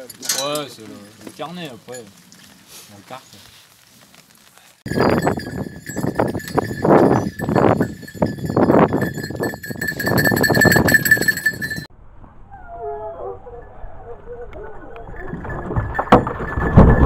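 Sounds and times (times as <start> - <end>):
hounds barking and baying: 12.6 - 15.8.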